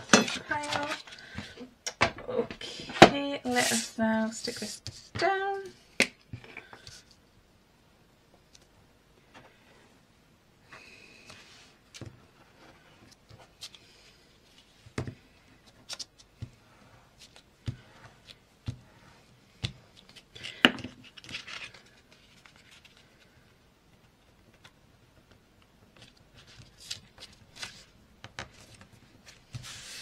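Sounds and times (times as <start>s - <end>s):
paper being handled and smoothed: 3.4s - 5.2s, 28.6s - 30.0s
paper rustle: 19.9s - 23.4s, 26.0s - 27.9s, 28.5s - 30.0s.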